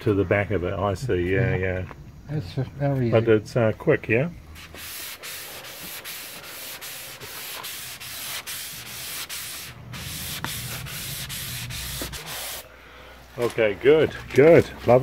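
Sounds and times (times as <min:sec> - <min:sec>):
sandpaper rubbing hull: 0:04.6 - 0:12.7.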